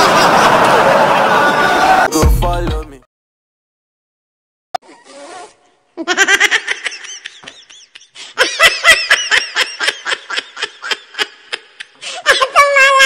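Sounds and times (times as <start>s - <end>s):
people laughing hard: 0.0s - 2.1s, 6.0s - 12.6s.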